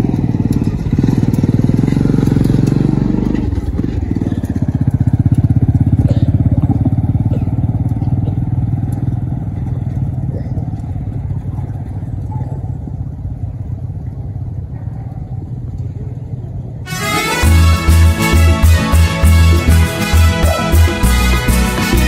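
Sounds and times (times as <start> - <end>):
motorcycle engine pulling away: 0.0 - 14.7.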